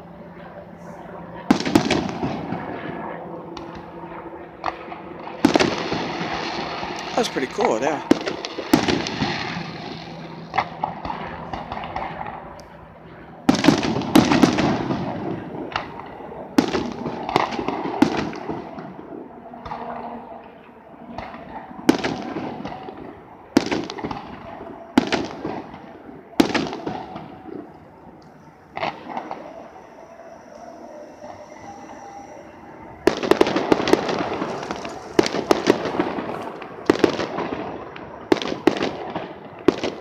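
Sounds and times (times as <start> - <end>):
firework shells bursting: 25.0 - 40.0.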